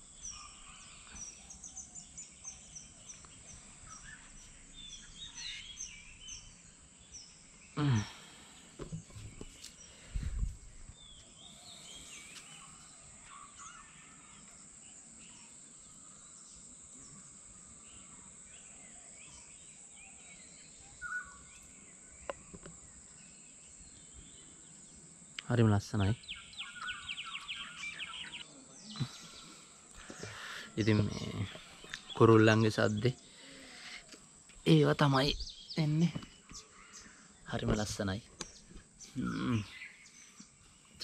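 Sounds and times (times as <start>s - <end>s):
birds chirping and whistling: 0.0s - 14.5s, 19.2s - 22.6s, 26.2s - 41.0s.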